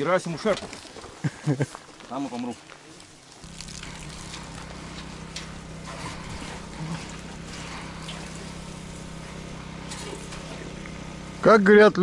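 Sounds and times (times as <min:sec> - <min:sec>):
faint low hum: 0:03.0 - 0:11.9
river water flowing: 0:03.3 - 0:09.5.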